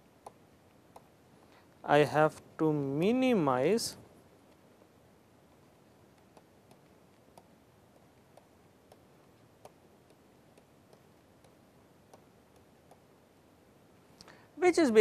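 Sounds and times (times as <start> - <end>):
low steady hiss: 0.0 - 15.0
stylus tapping on pen tablet: 0.2 - 1.2, 6.1 - 13.1.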